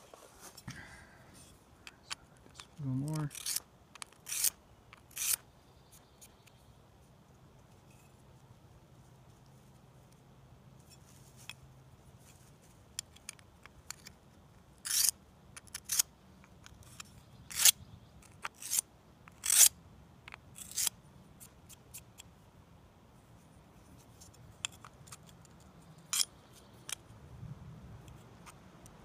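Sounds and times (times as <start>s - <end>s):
metal scraping on whetstone: 3.3s - 5.4s, 14.8s - 15.1s, 19.4s - 19.7s, 20.6s - 20.9s.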